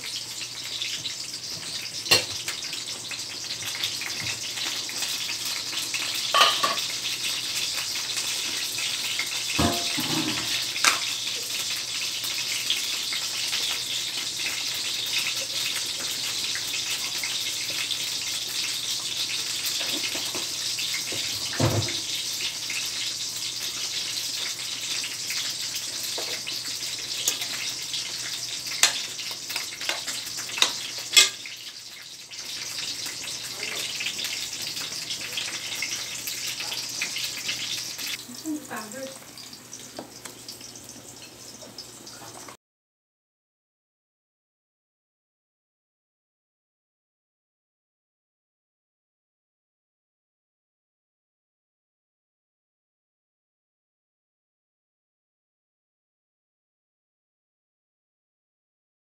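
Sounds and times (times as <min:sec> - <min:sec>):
food sizzling in oil: 0:00.0 - 0:42.6
metal clanks: 0:09.6 - 0:11.0.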